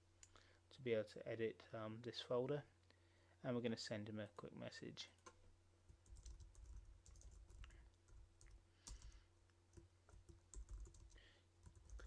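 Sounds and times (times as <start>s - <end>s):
typing on computer keyboard: 6.0s - 12.0s.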